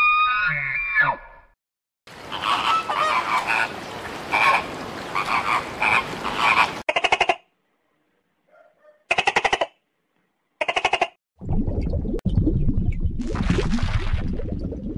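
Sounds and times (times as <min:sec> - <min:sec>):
flamingos honking: 0:02.2 - 0:07.2
flock background calls: 0:04.3 - 0:06.8.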